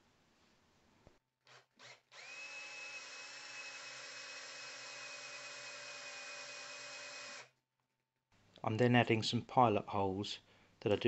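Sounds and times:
cordless drill whining: 1.4s - 7.5s.

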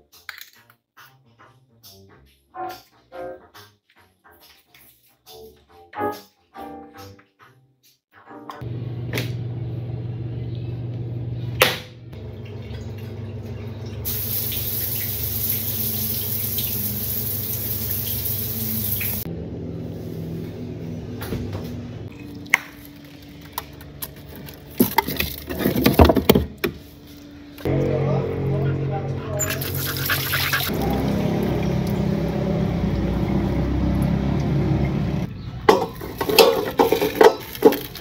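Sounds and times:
running water hiss: 14.1s - 19.3s.

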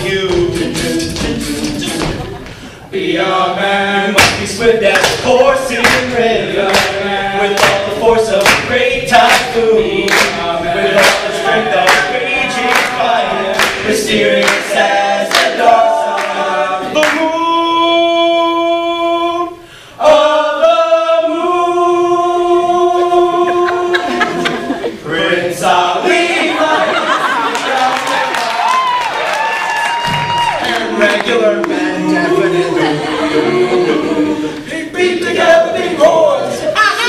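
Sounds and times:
vocal percussion beat: 0.0s - 20.3s
male group singing in harmony: 0.0s - 28.3s, 30.5s - 36.8s.

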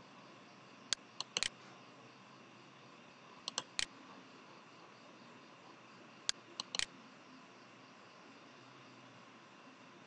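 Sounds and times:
steady low hiss: 0.0s - 10.0s
computer mouse button clicks: 0.9s - 1.5s, 3.5s - 3.9s, 6.3s - 6.9s.

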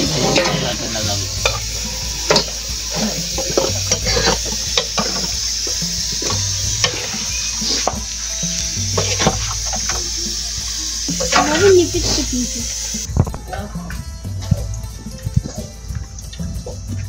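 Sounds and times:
metal spoon scraping iron pan: 0.0s - 8.1s, 8.9s - 10.1s
hot pan sizzling: 0.0s - 17.0s.

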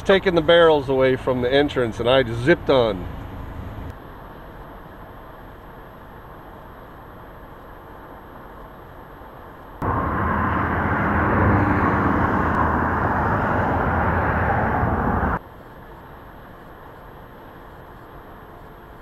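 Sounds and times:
loud rush of highway traffic: 0.0s - 4.0s, 9.8s - 15.4s
car road and tyre noise: 0.0s - 4.1s, 9.8s - 15.4s.

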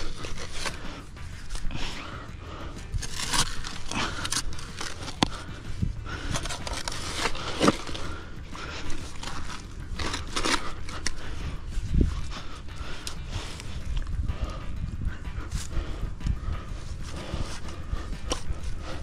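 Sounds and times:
spade digging into soil: 0.0s - 2.1s, 2.8s - 11.4s.

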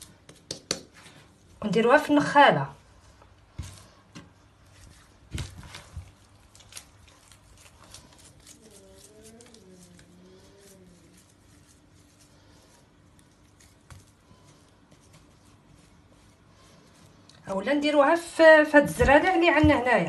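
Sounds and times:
hands patting bread dough: 0.0s - 1.3s, 3.1s - 9.5s, 11.1s - 17.2s, 18.6s - 20.0s
faint taps and rustles: 18.7s - 20.0s.

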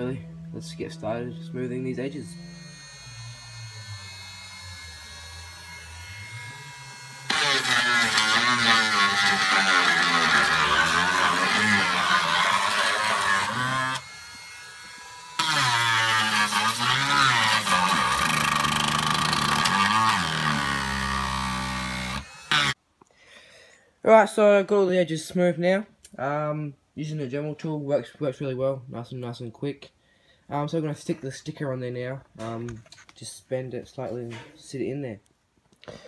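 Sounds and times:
rotary tool grinding plastic pipe: 2.2s - 22.8s.

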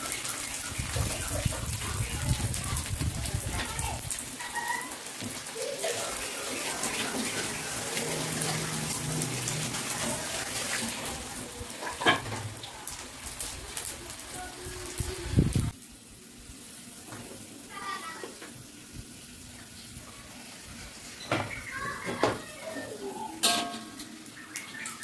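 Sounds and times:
fish frying in oil: 0.0s - 25.0s.

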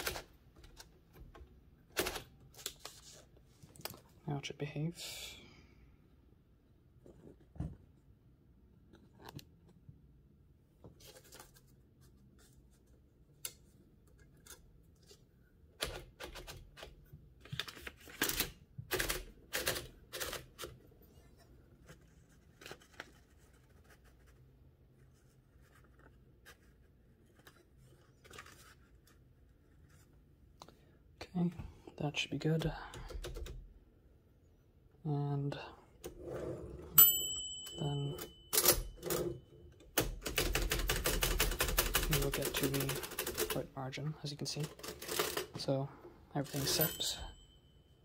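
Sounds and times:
paper rustling: 2.4s - 4.2s, 10.9s - 13.0s, 21.8s - 30.2s.

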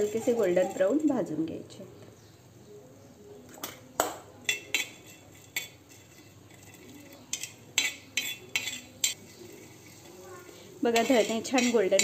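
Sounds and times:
metal spoon scraping a griddle: 0.0s - 1.5s, 4.4s - 12.0s.

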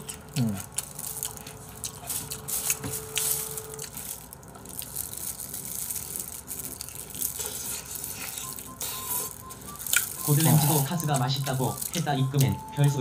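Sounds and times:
crunching fried chicken: 0.0s - 13.0s.

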